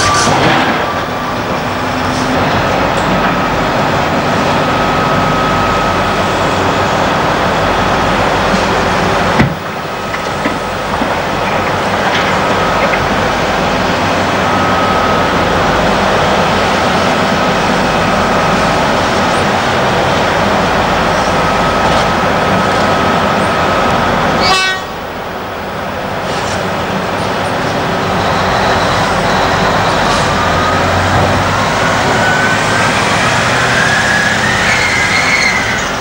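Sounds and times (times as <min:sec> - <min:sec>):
thin steady whine: 0:00.0 - 0:24.4
diesel engines running under load: 0:00.0 - 0:36.0.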